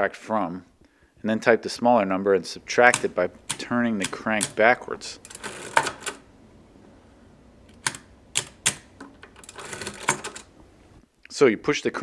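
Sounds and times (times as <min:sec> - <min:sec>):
adding machine mechanism clicking: 0:02.8 - 0:06.2, 0:07.7 - 0:10.5.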